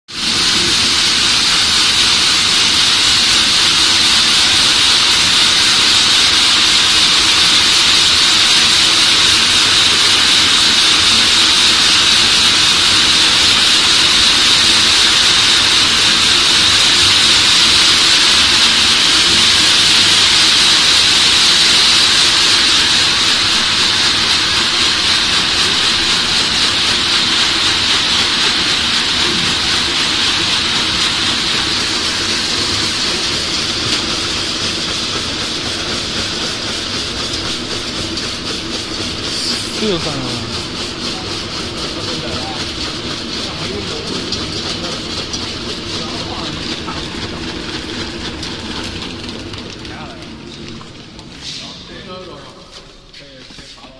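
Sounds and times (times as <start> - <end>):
vibrating sieve machine hissing: 0.1 - 53.9
low machine hum: 32.5 - 51.3.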